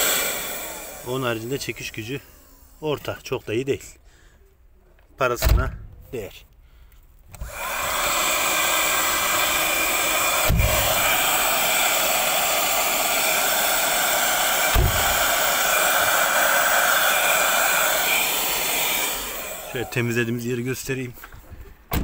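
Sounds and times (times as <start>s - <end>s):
handheld vacuum running: 0.0s - 3.1s, 7.4s - 20.4s
dull knocks: 14.7s - 15.2s.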